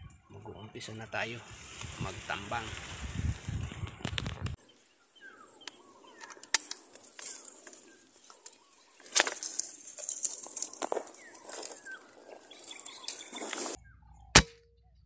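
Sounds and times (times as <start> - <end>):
small birds chirping: 3.5 - 15.0.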